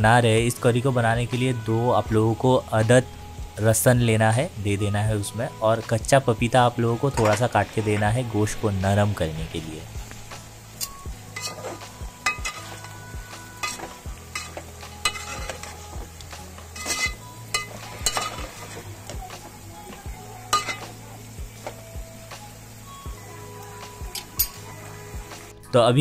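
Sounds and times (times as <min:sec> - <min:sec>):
meat sizzling: 0:00.0 - 0:25.6
spatula scraping metal pot: 0:11.3 - 0:16.0, 0:16.6 - 0:19.2, 0:20.5 - 0:21.0.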